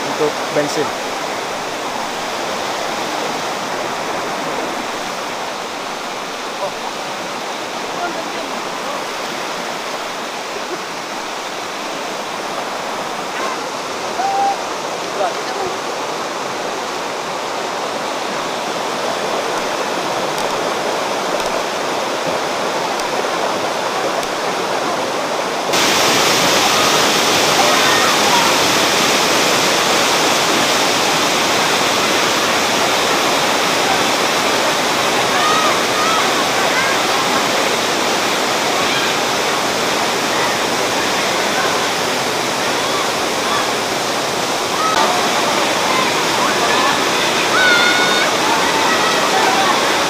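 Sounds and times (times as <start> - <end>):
water rushing over rocks: 0.0 - 50.0
waterfall plunging into pool: 25.7 - 50.0.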